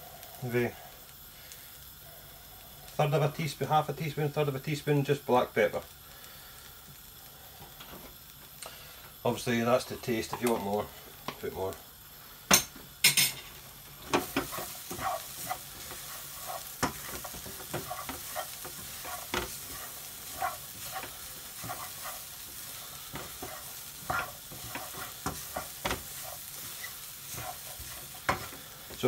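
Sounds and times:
low sizzle: 0.0 - 29.0
spatula scraping frying pan: 13.1 - 29.0.

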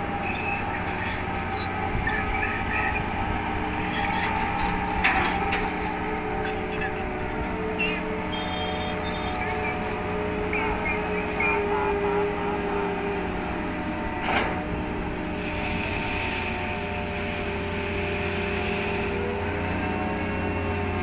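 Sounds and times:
crane machinery humming: 0.0 - 21.0
coal pouring: 4.4 - 6.9, 8.8 - 10.8, 15.3 - 20.7.

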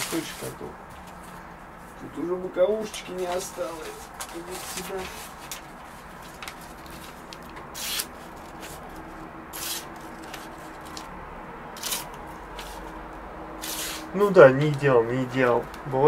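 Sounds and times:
knife slicing paper: 7.7 - 8.8, 9.5 - 11.0, 11.8 - 12.9, 13.6 - 14.2.

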